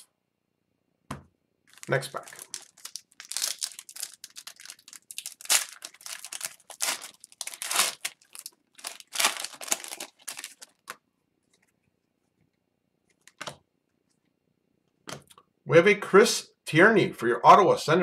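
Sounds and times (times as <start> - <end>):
plastic wrapper tearing and crinkling: 1.7 - 11.0.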